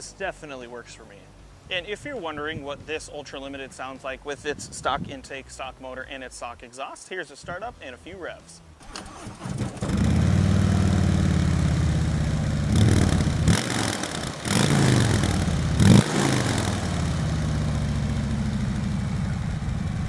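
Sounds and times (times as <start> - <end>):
motorcycle engine idling and revving: 8.9 - 20.0.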